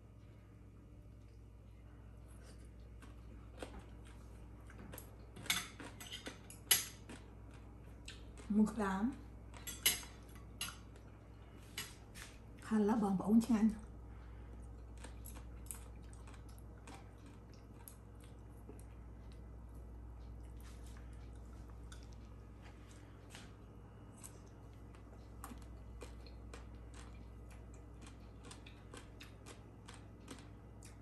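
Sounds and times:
steady low hum: 0.0s - 31.0s
chewing: 2.2s - 8.5s, 14.2s - 31.0s.

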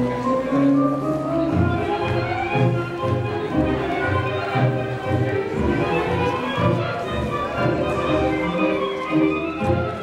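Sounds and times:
tango music: 0.0s - 10.0s.

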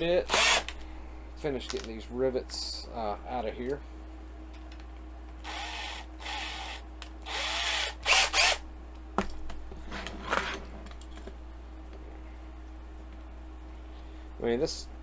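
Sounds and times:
small drill motor: 0.3s - 0.7s, 5.4s - 8.6s.

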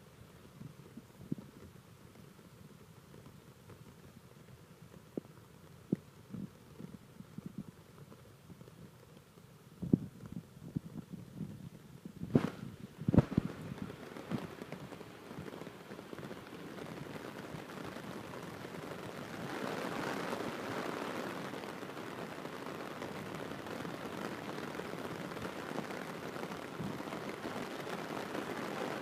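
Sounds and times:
heavy rain falling: 12.2s - 29.0s.

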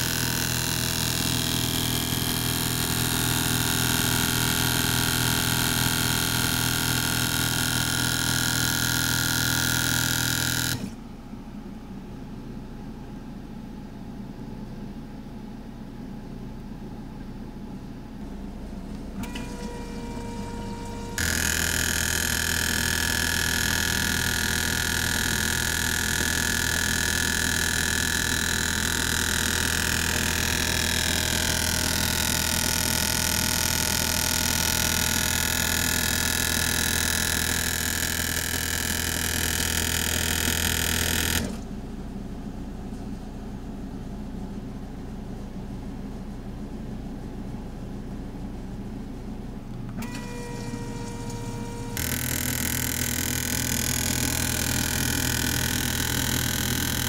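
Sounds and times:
pump buzz and injector spray hiss: 0.0s - 11.0s, 19.2s - 41.7s, 49.9s - 57.0s.

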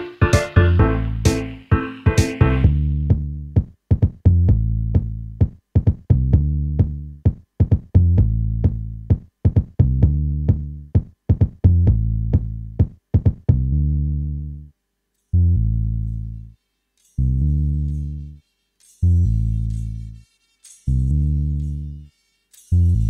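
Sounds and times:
deep decaying bass note: 0.0s - 1.7s
sharp percussion hits: 0.0s - 2.7s.

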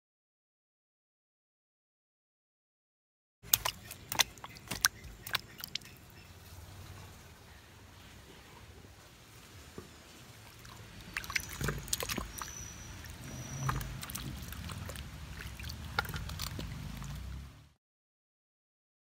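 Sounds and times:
water splashing: 3.4s - 17.7s.

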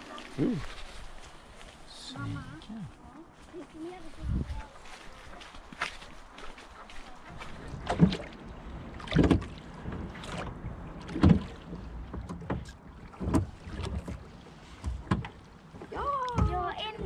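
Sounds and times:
water sounds: 0.0s - 17.0s
oars knocking on boat hull: 9.0s - 17.0s.

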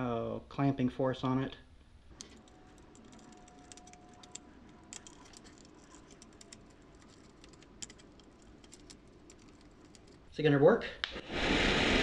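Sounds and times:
screwdriver clicks and ticks: 2.2s - 10.3s.

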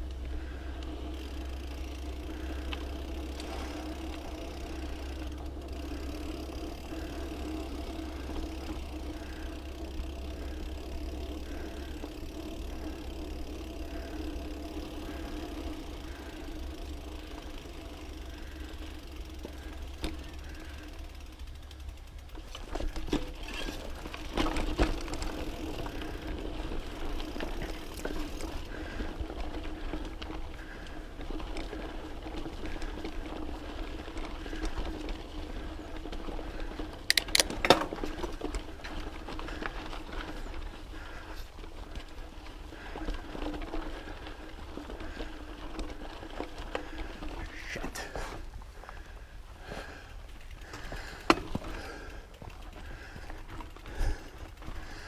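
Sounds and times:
faint regular ticking: 0.0s - 22.6s
bike tyres rumbling on dirt: 0.0s - 55.0s
bike knocks and rattles: 21.8s - 26.3s, 36.5s - 40.4s, 50.6s - 55.0s.

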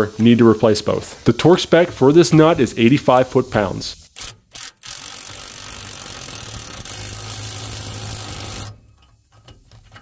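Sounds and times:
impact wrench hammering: 4.1s - 9.6s.

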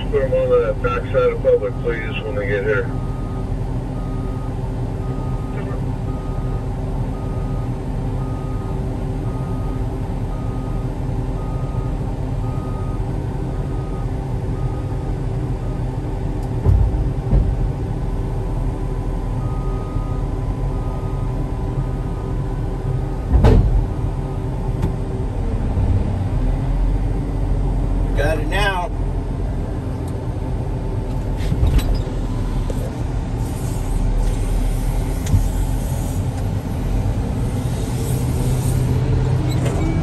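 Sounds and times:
diesel engine under load: 0.0s - 40.0s.

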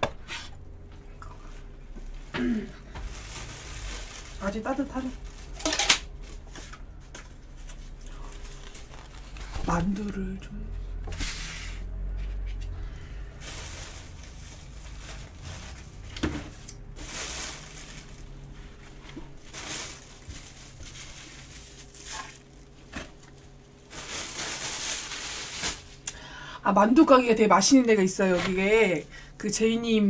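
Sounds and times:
food package crinkling: 3.1s - 6.4s, 8.0s - 10.0s, 16.6s - 26.0s.

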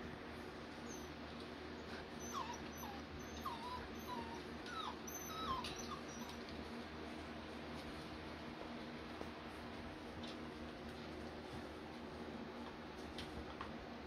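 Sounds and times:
faint steady hum: 0.0s - 14.0s
puppies whimpering: 1.8s - 6.5s.

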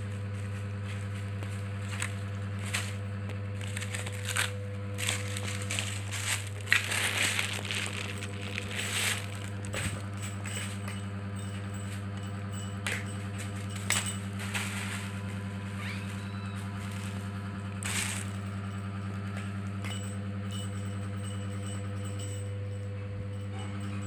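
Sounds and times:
steady low hum: 0.0s - 24.0s
plastic crinkle: 0.9s - 10.2s, 17.8s - 18.6s.

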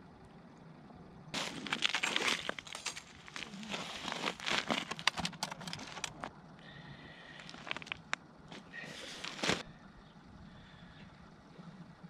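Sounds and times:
crunching snow on ice: 1.3s - 6.3s, 7.3s - 9.7s.

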